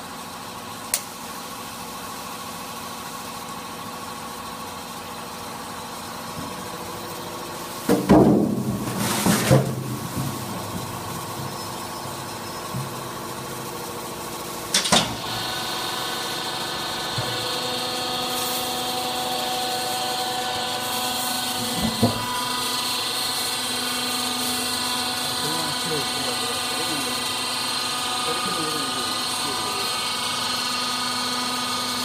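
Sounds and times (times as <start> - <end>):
hydraulic press humming: 4.2 - 32.0
loud clunk: 7.8 - 12.0, 14.7 - 15.2, 21.6 - 22.4.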